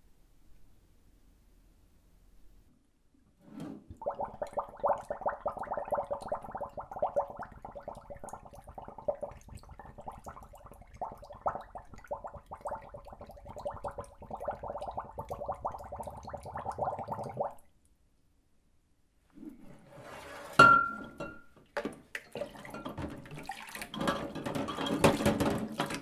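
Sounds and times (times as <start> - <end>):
bottles filling with water bubbling: 3.9 - 17.6, 22.3 - 26.0.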